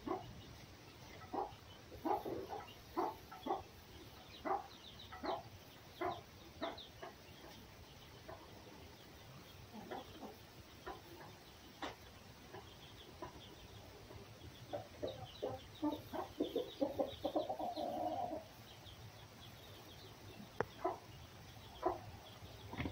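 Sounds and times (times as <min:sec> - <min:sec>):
animal clucking calls: 0:01.2 - 0:03.6.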